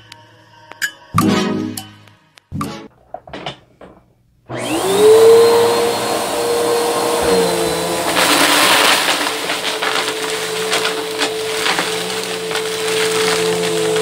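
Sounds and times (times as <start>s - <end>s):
vacuum cleaner motor: 4.5s - 14.0s
beans rattling into vacuum: 7.3s - 14.0s.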